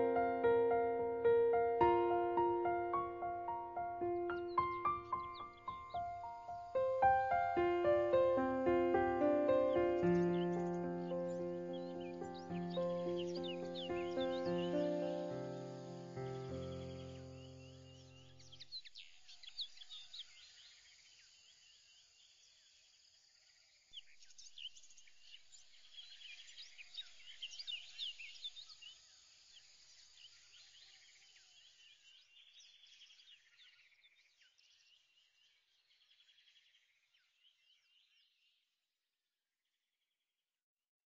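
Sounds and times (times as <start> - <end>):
music track: 0.0 - 17.4
faint high chirps and twitters: 0.0 - 21.7.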